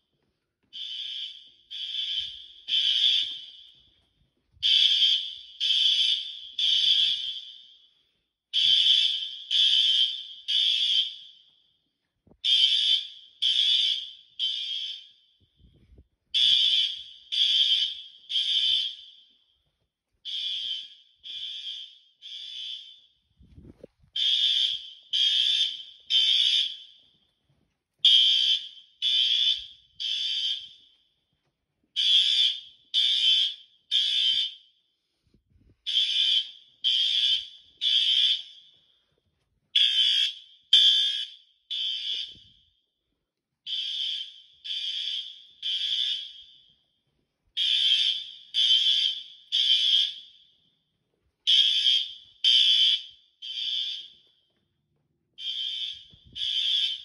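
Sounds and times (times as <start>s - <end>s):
high-pitched fire alarm horn blasts: 0.7s - 3.9s, 4.6s - 7.9s, 8.5s - 11.5s, 12.4s - 15.4s, 16.4s - 19.4s, 20.3s - 23.2s, 24.2s - 27.1s, 28.0s - 30.9s, 32.0s - 34.8s, 35.8s - 38.8s, 39.8s - 42.7s, 43.7s - 46.7s, 47.6s - 50.6s, 51.5s - 54.2s, 55.4s - 57.0s.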